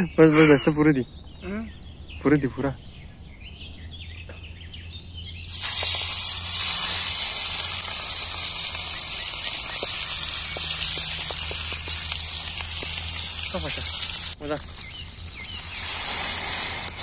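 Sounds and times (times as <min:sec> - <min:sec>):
birds chirping: 0:00.0 - 0:17.0
oil popping: 0:05.5 - 0:17.0
steak sizzling in hot oil: 0:05.5 - 0:17.0.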